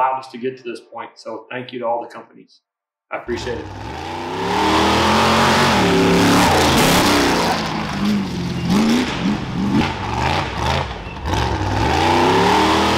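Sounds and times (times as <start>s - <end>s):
engine revving hard: 3.3s - 12.9s.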